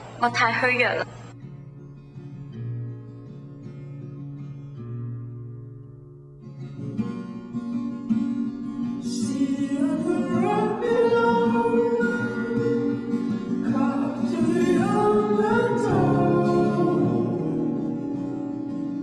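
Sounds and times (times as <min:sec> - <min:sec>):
acoustic guitar: 0:00.0 - 0:19.0
person singing: 0:09.0 - 0:18.5.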